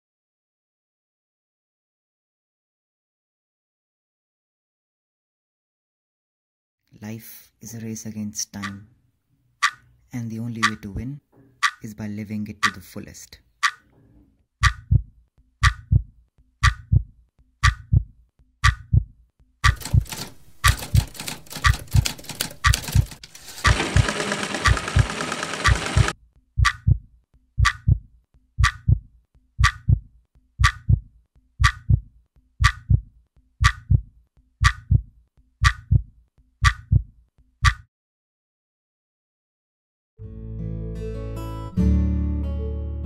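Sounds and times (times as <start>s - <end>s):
sharp clock-like ticks: 9.6s - 9.8s, 10.6s - 10.8s, 11.6s - 11.8s, 13.6s - 13.9s, 14.6s - 15.0s, 15.6s - 16.0s, 16.6s - 17.0s, 17.6s - 18.0s, 18.6s - 19.0s, 19.6s - 27.0s, 27.6s - 28.0s, 28.6s - 29.0s, 29.6s - 30.0s, 30.6s - 31.0s, 31.6s - 32.0s, 32.6s - 33.0s, 33.6s - 34.0s, 34.6s - 35.0s, 35.6s - 36.0s, 36.6s - 37.0s, 37.6s - 37.8s
low heartbeat thumps: 14.6s - 21.1s, 26.6s - 37.8s.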